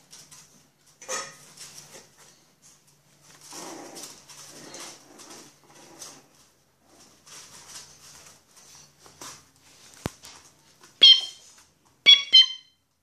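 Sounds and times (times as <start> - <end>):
puppies scampering on floor: 0.0 - 12.1
puppy yelp: 11.0 - 11.4, 12.0 - 12.8.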